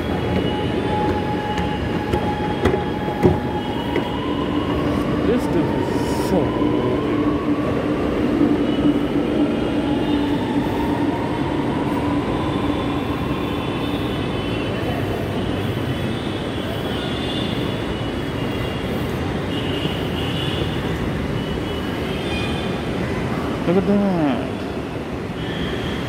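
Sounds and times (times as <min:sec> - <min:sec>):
train rumble: 0:00.0 - 0:15.9.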